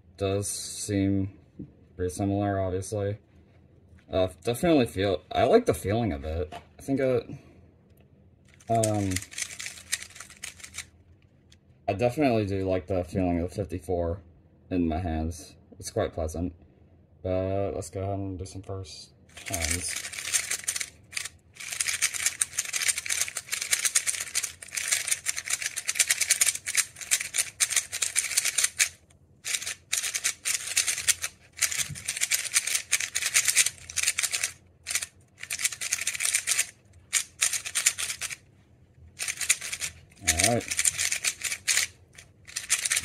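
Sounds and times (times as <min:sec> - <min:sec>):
puzzle cube plastic clicking: 0:08.5 - 0:10.9, 0:19.3 - 0:38.4, 0:39.2 - 0:43.0.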